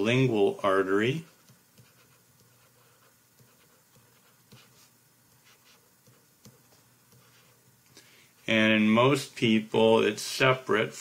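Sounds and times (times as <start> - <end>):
stylus writing on a tablet: 0.5 - 7.8.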